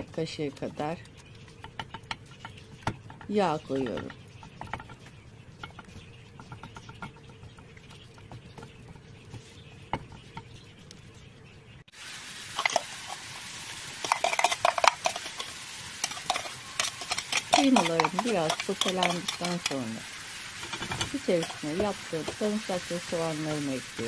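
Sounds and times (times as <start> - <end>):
spatula scraping a pan: 0.9 - 10.4, 12.6 - 22.4
meat sizzling in a pan: 11.9 - 24.0.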